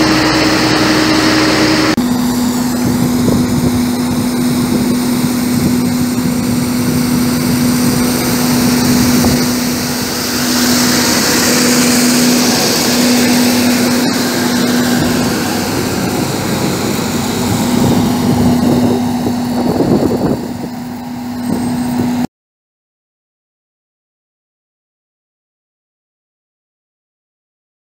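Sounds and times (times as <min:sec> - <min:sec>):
rotating brush scrubbing road: 0:00.0 - 0:22.3
truck engine humming: 0:00.0 - 0:22.3.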